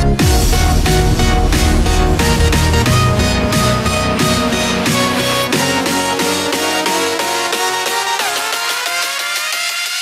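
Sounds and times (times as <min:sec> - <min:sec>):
electronic music with synth notes: 0:00.0 - 0:10.0.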